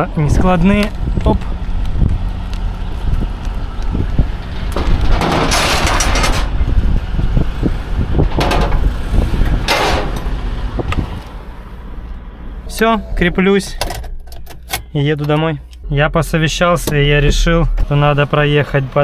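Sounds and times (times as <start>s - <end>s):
car engine rumbling: 0.0s - 19.0s
tyres spinning on trailer deck: 4.4s - 6.9s.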